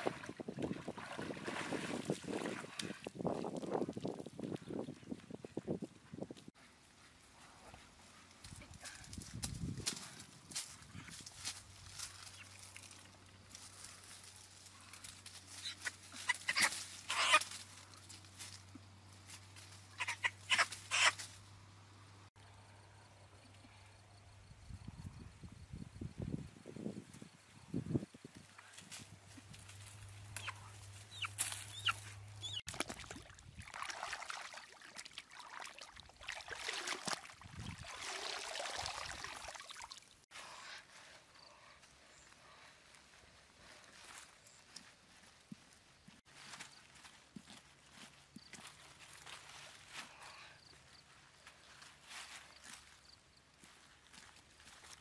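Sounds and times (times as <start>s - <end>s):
water splashing and sloshing: 0.0s - 4.8s, 32.6s - 40.3s
crunching of dry leaves: 8.1s - 21.5s, 28.6s - 32.7s, 42.4s - 55.0s
chickens squawking: 15.6s - 17.5s, 19.9s - 21.2s, 30.4s - 32.6s.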